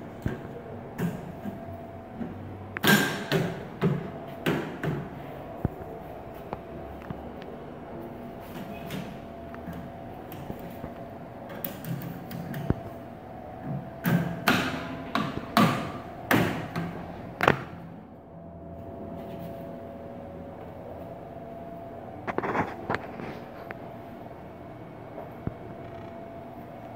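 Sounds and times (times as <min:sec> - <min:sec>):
faint steady hum: 0:00.0 - 0:26.9.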